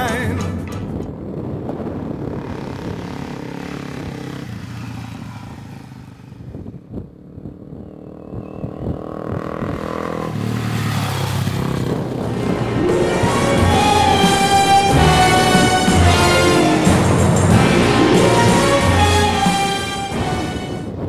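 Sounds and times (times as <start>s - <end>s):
dirt bike engine running: 0.8s - 12.8s.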